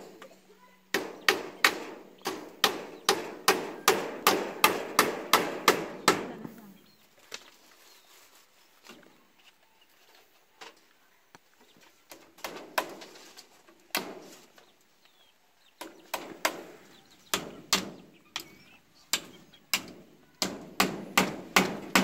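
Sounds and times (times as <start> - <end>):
hammer knocking on wood: 0.9 - 6.5, 19.2 - 22.0.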